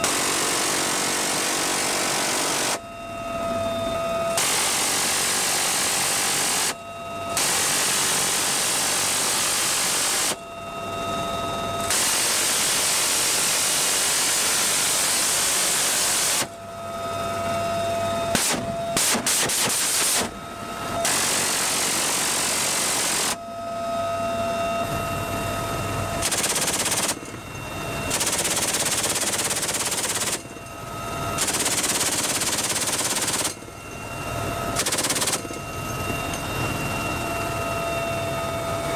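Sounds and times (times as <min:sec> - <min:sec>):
helicopter whine: 0:00.0 - 0:38.9
machine gun firing bursts: 0:00.1 - 0:02.8, 0:26.2 - 0:27.2, 0:28.1 - 0:30.4, 0:31.4 - 0:33.6, 0:34.8 - 0:35.5.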